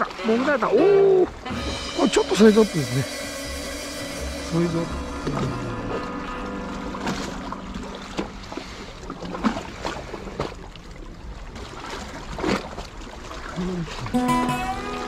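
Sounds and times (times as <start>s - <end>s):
water lapping against concrete blocks: 0.0s - 1.5s, 3.9s - 14.2s.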